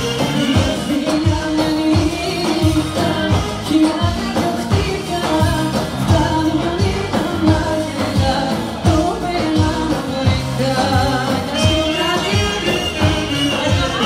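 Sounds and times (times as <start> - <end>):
live band with singer: 0.0 - 14.0.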